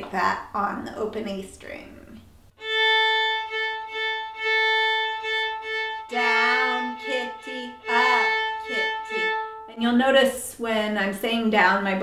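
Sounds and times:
fiddle bowing open string: 2.6 - 9.9.

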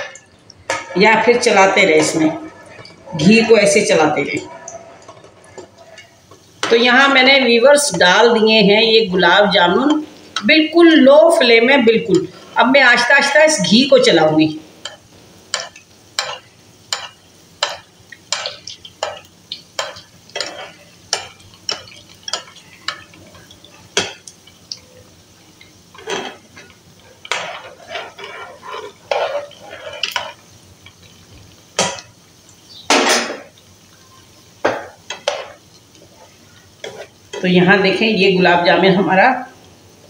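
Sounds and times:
metal spoon scraping a frying pan: 0.0 - 3.6, 4.4 - 6.8, 14.8 - 24.2, 25.9 - 30.5, 34.7 - 35.6, 36.2 - 37.5
faint frying sizzle: 0.0 - 40.0.

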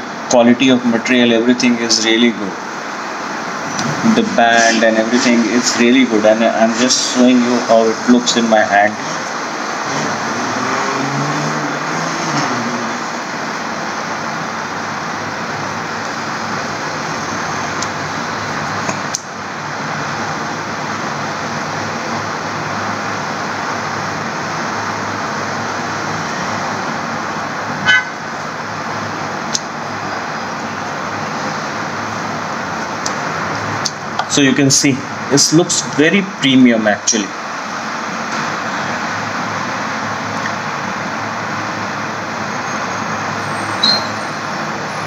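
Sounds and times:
steady background noise: 0.0 - 45.0
short high-pitched toot: 27.8 - 28.2, 43.4 - 44.6.

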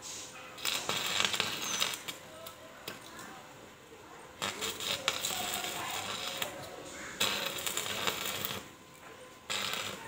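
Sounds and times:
welding arc crackling: 0.3 - 3.2, 4.4 - 8.8, 9.4 - 10.0.

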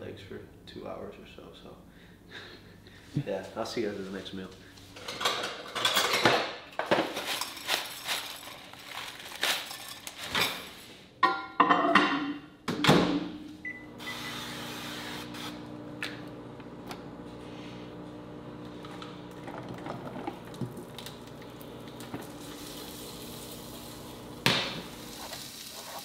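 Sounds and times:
dishes knocking and clicking: 11.2 - 13.0
microwave humming: 13.2 - 25.6
microwave beep: 13.6 - 15.7.

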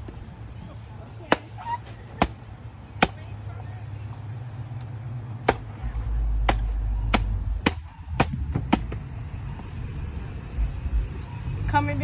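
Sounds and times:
machete chopping coconut: 1.3 - 1.6, 2.2 - 2.4, 3.0 - 3.2, 5.4 - 5.8, 6.4 - 9.0.

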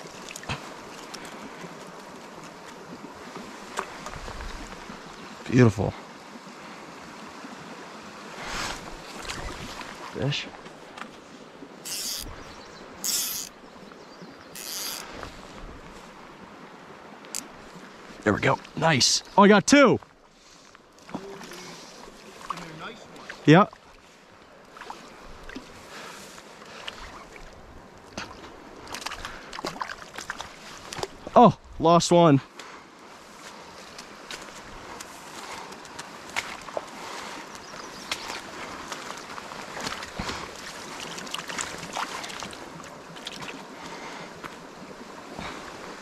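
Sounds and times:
brook running over rocks: 0.0 - 31.4, 33.0 - 46.0
stream rushing over rocks: 11.7 - 13.5, 14.5 - 20.0, 34.0 - 46.0.

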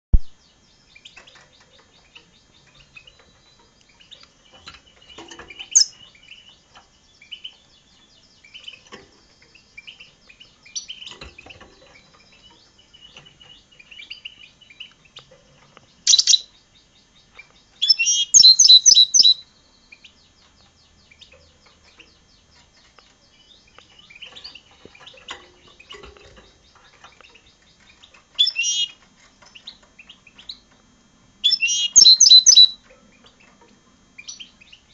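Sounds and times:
bird twittering: 0.1 - 30.7, 31.4 - 33.6
rapid high bird chirps: 0.5 - 11.2, 15.9 - 30.7, 31.4 - 33.5.

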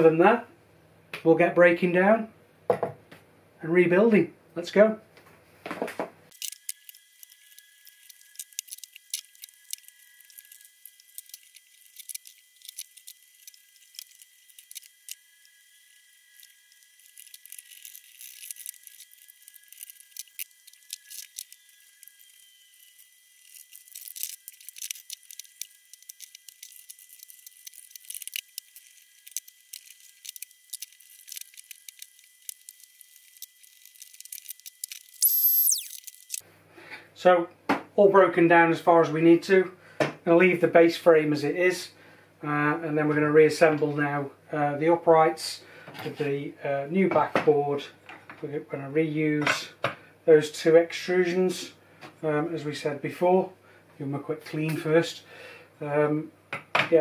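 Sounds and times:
faint high whine: 6.4 - 36.4.

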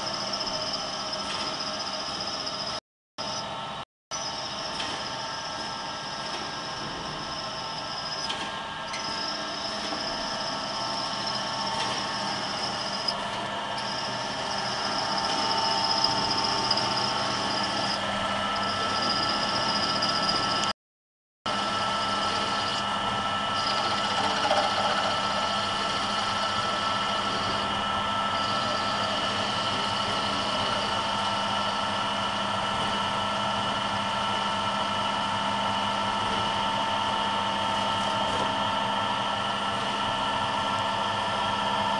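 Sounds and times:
electric motors humming: 0.0 - 20.7, 21.5 - 41.9
drills cutting into metal: 4.4 - 18.0, 18.6 - 20.7, 23.5 - 31.0.

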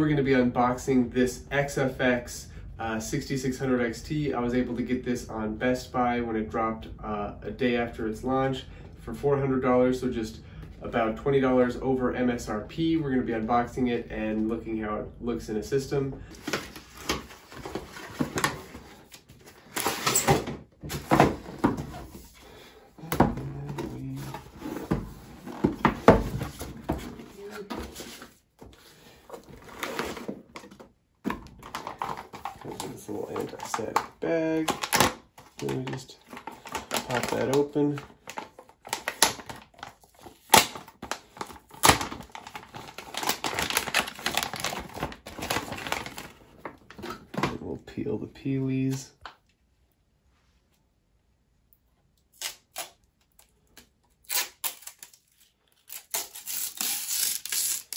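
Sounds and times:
plastic bag crinkling and rustling: 31.6 - 47.6.

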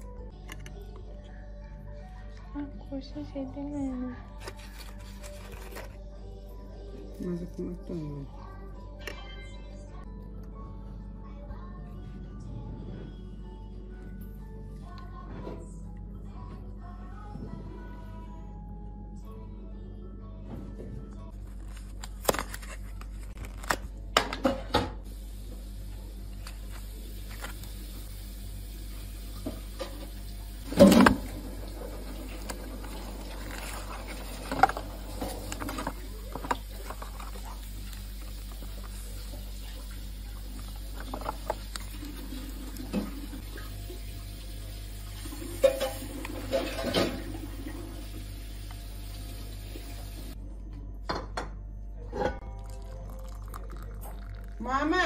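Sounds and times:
powder poured into glass bowl: 52.6 - 54.6.

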